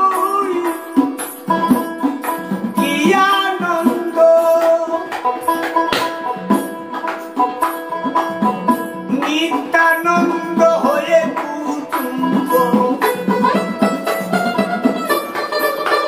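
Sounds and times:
hand drums: 0:00.0 - 0:16.0.

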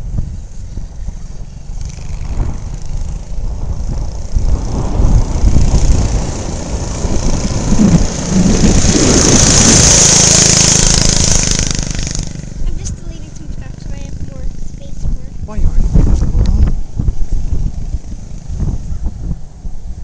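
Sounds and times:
small engine driving: 0:00.0 - 0:20.0
wind rumbling on microphone: 0:00.0 - 0:20.0.

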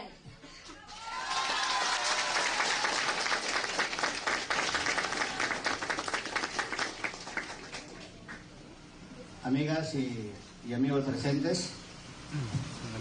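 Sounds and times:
audience applauding: 0:00.8 - 0:08.4.

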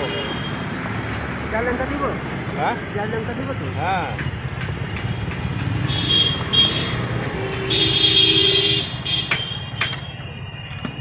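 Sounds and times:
traffic engine rumble: 0:00.0 - 0:11.0
vehicle horn: 0:05.9 - 0:09.6.

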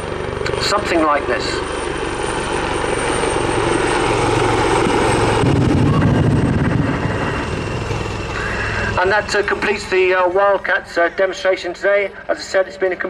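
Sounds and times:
helicopter rotor chopping: 0:00.0 - 0:13.0
turbine noise: 0:00.0 - 0:13.0.

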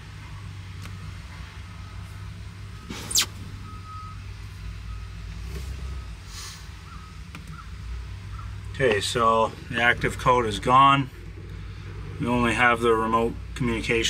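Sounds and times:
faint high beeps: 0:00.3 - 0:06.2
loud swishing noise: 0:02.9 - 0:03.4.

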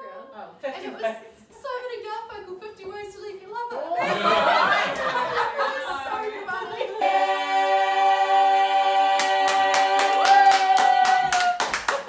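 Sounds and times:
voices singing a held note: 0:05.7 - 0:11.4
quick hand claps: 0:09.5 - 0:12.0.

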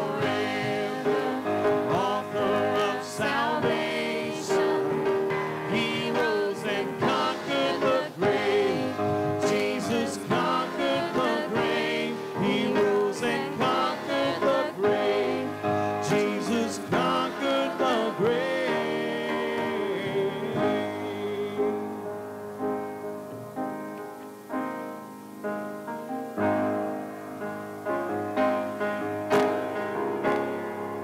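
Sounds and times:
person singing: 0:00.0 - 0:22.1
church music instruments: 0:00.0 - 0:31.0.

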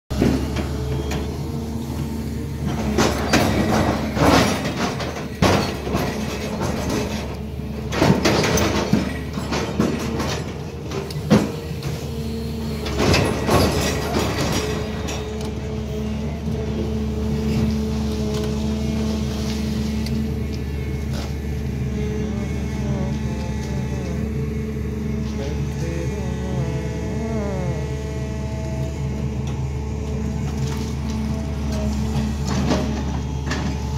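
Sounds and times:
excavator diesel engine running: 0:00.1 - 0:33.9
steel bucket clanking and scraping: 0:02.6 - 0:12.2, 0:12.8 - 0:15.4.

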